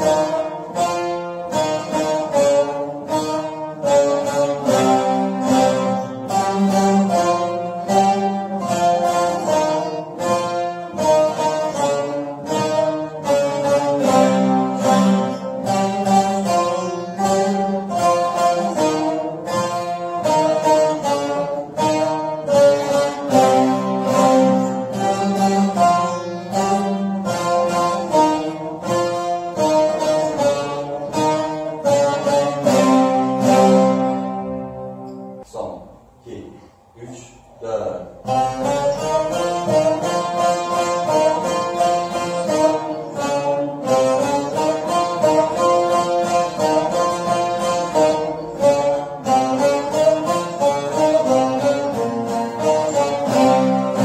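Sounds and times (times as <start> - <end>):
long-necked lutes playing: 0.0 - 54.0.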